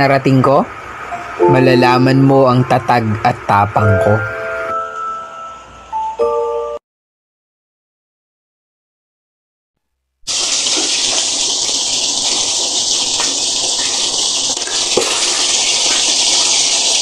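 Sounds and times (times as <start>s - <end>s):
soup boiling hard in a pot: 10.3s - 17.0s.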